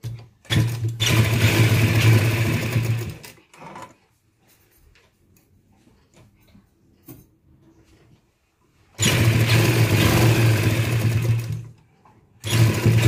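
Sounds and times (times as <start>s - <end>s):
sewing machine stitching: 0.0s - 4.0s, 9.0s - 11.8s, 12.4s - 13.0s.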